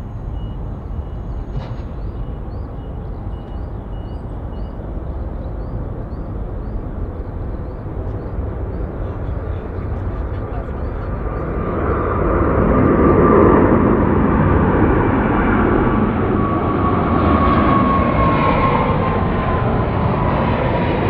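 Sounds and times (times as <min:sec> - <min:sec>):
faint high chirp: 0:00.0 - 0:11.6
jet engines rumbling: 0:00.0 - 0:21.0.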